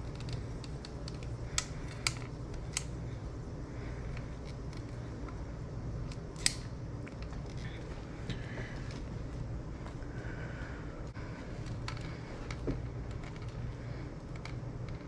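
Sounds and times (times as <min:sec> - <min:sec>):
steady low hum: 0:00.0 - 0:15.0
sharp clicks: 0:06.0 - 0:07.3.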